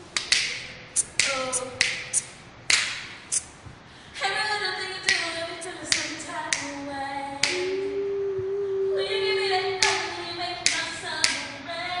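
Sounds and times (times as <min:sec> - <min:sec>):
person singing unaccompanied: 0:04.2 - 0:12.0
hand claps: 0:07.4 - 0:07.7, 0:09.8 - 0:10.0, 0:10.6 - 0:11.4.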